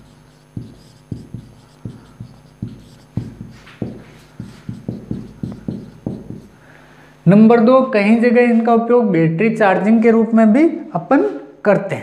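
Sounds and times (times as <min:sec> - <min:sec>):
marker writing on whiteboard: 0:00.0 - 0:06.6.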